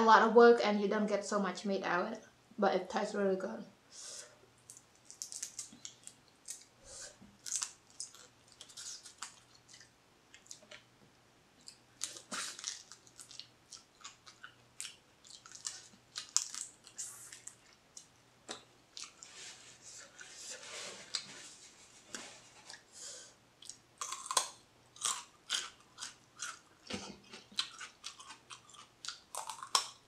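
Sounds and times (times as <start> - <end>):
chewing crab in the shell: 11.6 - 18.1, 23.6 - 30.0.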